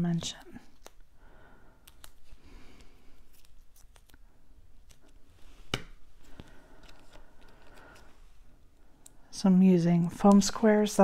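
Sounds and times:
small ticks and faint crinkles: 1.8 - 5.2, 6.3 - 8.1.

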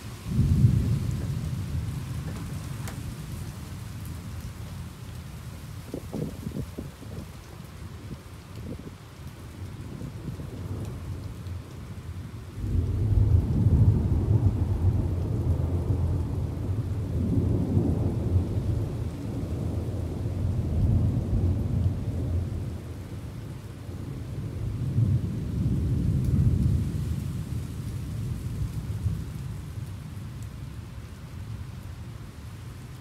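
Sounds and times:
steady rain hissing: 0.0 - 33.0
rolling thunder: 0.2 - 4.2, 12.5 - 30.1.

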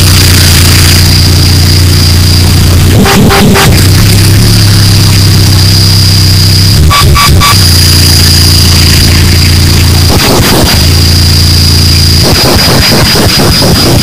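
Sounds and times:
distorted noise music: 0.0 - 14.0
low drone: 0.0 - 14.0
thin high whine: 0.0 - 14.0.

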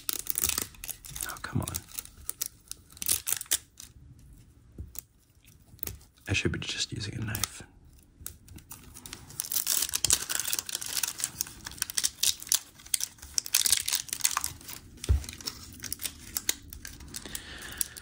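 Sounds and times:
plastic wrap crinkling and tearing: 0.0 - 6.2, 7.3 - 18.0.

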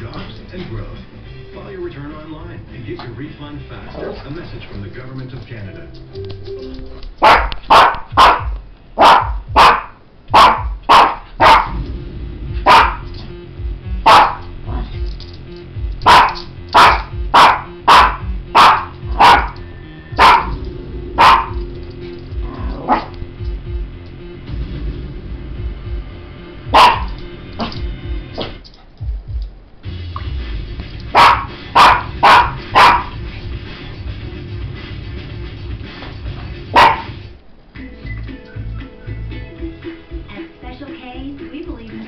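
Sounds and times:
small dog barking: 7.2 - 11.8, 12.7 - 13.1, 14.0 - 14.9, 16.0 - 19.6, 20.2 - 20.6, 21.2 - 21.6, 26.7 - 27.8, 31.1 - 33.2, 36.7 - 37.1.

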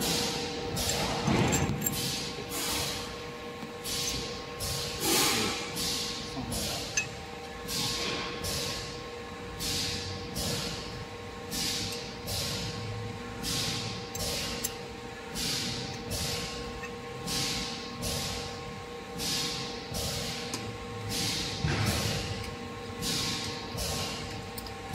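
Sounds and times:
electrical hum: 0.0 - 24.9
pneumatic air hisses: 1.8 - 3.1, 3.8 - 6.8, 7.7 - 8.8, 9.6 - 10.8, 11.5 - 12.7, 13.4 - 14.6, 15.3 - 16.6, 17.2 - 18.5, 19.2 - 20.4, 21.0 - 22.3, 23.0 - 24.2.

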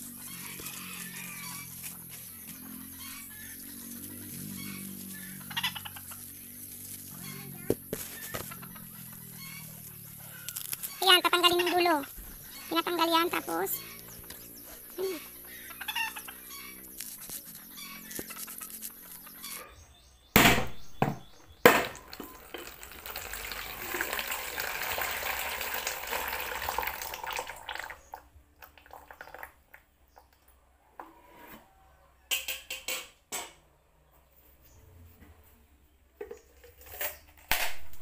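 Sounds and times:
water pouring into plastic basin: 22.0 - 29.8.

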